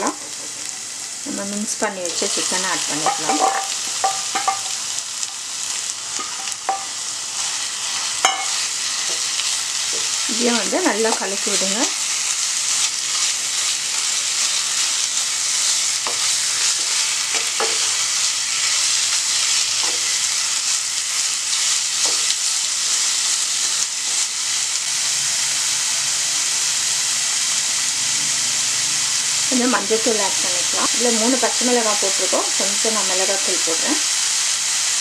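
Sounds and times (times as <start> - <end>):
food sizzling in oil: 0.0 - 35.0
wooden spoon knocking pan: 3.0 - 4.8, 6.2 - 6.9.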